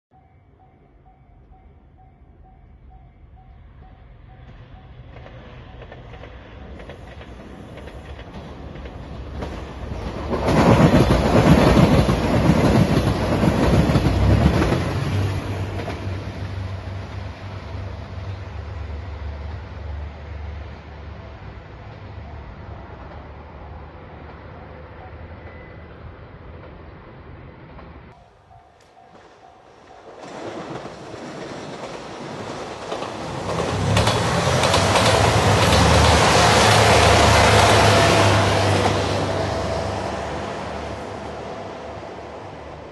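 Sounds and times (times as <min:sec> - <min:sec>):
diesel train passing: 0:00.1 - 0:42.9
wheels clicking over rail joints: 0:05.1 - 0:16.3, 0:28.6 - 0:37.8
wheels clattering over rails: 0:29.1 - 0:42.2.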